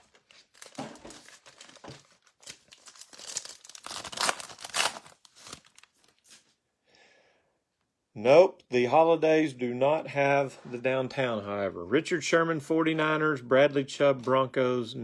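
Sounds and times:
foil wrapper crinkling and tearing: 0:00.0 - 0:06.4.

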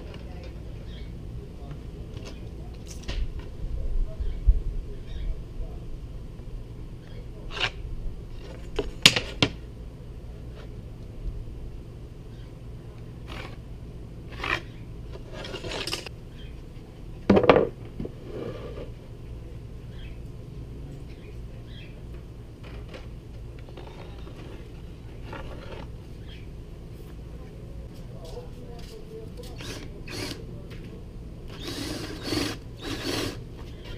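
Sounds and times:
steady low hum: 0:00.0 - 0:33.9
metal square scraping on plywood: 0:14.3 - 0:16.1, 0:17.5 - 0:18.9.

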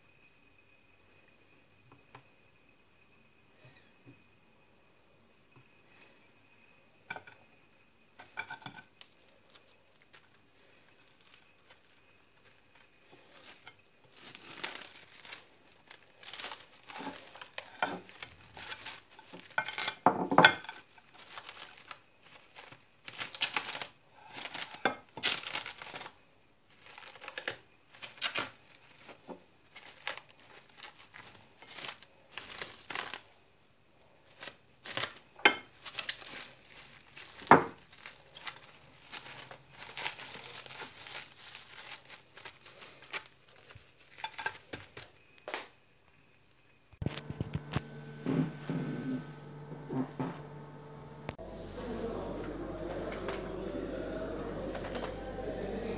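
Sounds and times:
plastic wrap crinkling: 0:08.2 - 0:33.4, 0:34.0 - 0:45.4.

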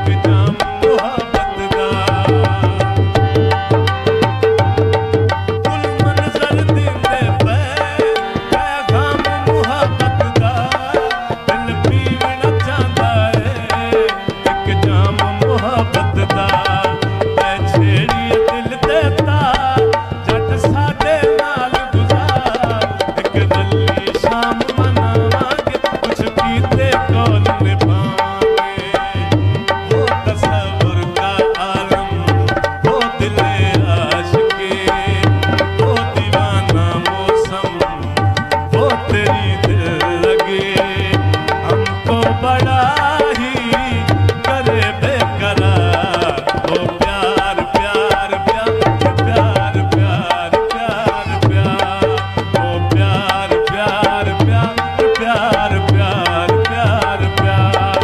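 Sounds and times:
hand drum rhythm: 0:00.0 - 0:58.0
harmonium melody: 0:00.0 - 0:58.0.

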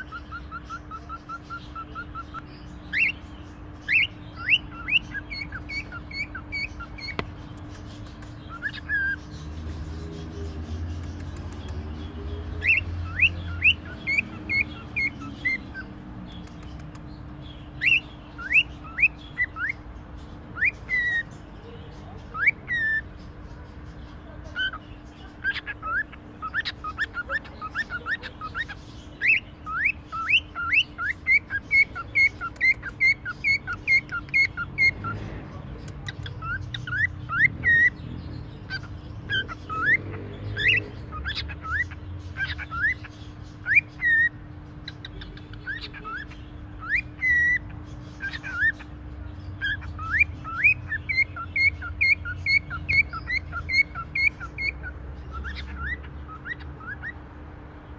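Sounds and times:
cockatiel whistling: 0:08.5 - 0:09.2.

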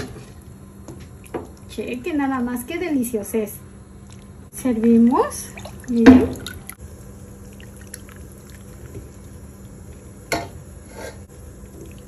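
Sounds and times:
broth splashing into bowl: 0:05.4 - 0:10.0.

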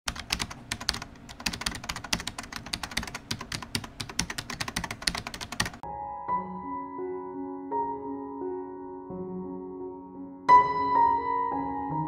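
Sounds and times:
computer keyboard typing: 0:00.1 - 0:05.8.

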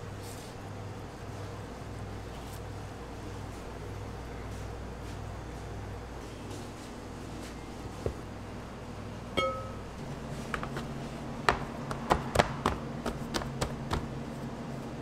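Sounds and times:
short ringing clink: 0:09.4 - 0:09.8.

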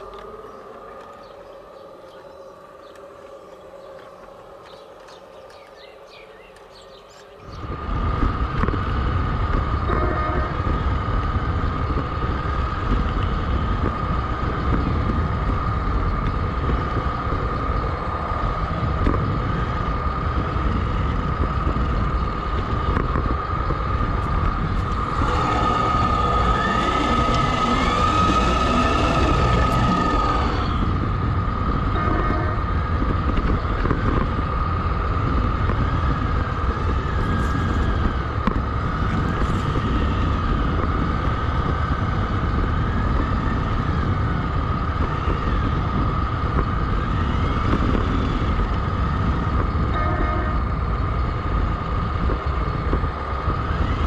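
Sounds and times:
model train motor whine: 0:24.5 - 0:34.2.

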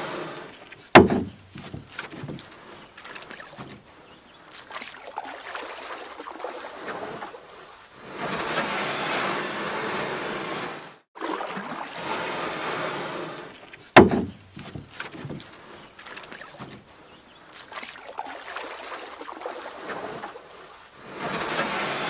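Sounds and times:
water splashing around canoe: 0:00.0 - 0:22.0
sharp knock: 0:01.0 - 0:01.4, 0:14.0 - 0:14.4
rush of wind and water: 0:04.4 - 0:22.0.

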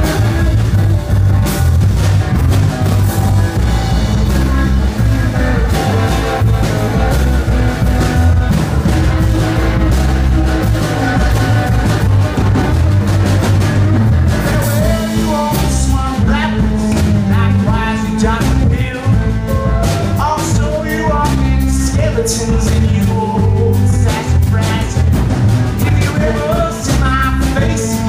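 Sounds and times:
fiddle: 0:00.0 - 0:28.0
folk country band playing: 0:00.0 - 0:28.0
male lead vocal: 0:14.3 - 0:28.0.

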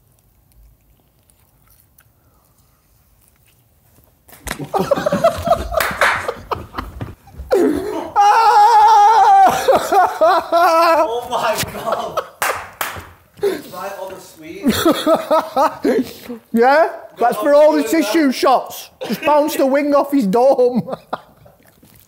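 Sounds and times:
loud laughter: 0:04.4 - 0:12.4.

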